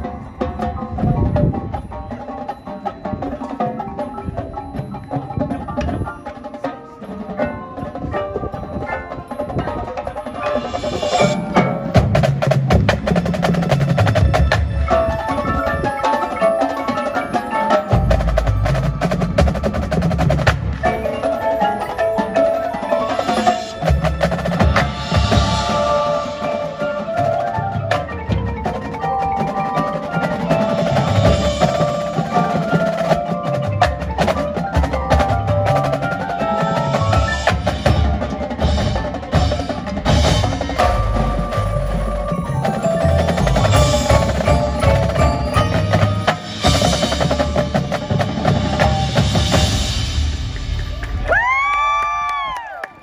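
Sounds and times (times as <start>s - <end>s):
marimbas and vibraphones melody: 0.0s - 51.0s
tenor drums: 0.0s - 52.6s
snare drums: 10.1s - 16.5s, 22.9s - 52.6s
bass drums: 37.0s - 52.4s.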